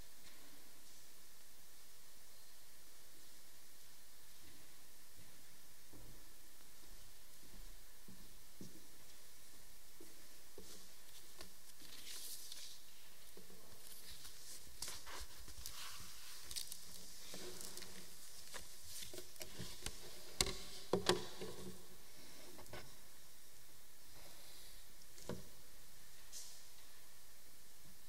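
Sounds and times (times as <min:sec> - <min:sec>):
steady low hiss: 0:00.0 - 0:28.0
rustles of handling: 0:10.6 - 0:21.7.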